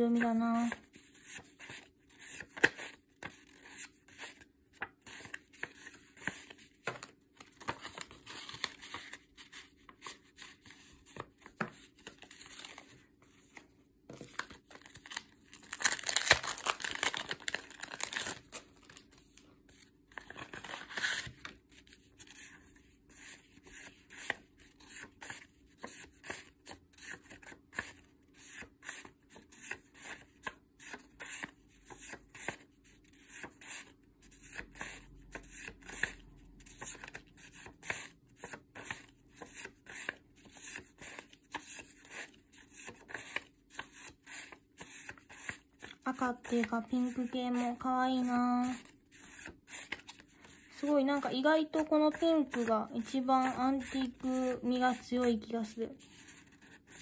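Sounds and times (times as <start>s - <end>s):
paper rustling and tapping: 4.8s - 9.2s
plastic packet crinkling: 14.4s - 19.4s.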